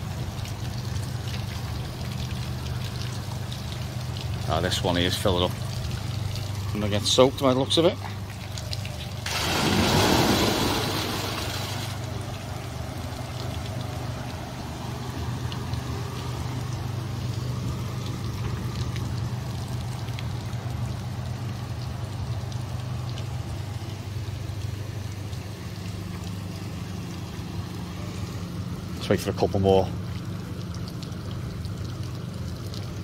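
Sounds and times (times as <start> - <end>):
constant low hum: 0.0 - 33.0
water splashing and trickling: 0.0 - 33.0
bucket dumping water splash: 8.5 - 12.2.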